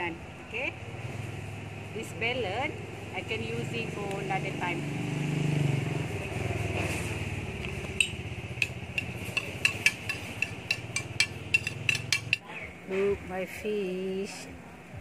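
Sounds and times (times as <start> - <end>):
low engine-like rumble: 5.6 - 12.4.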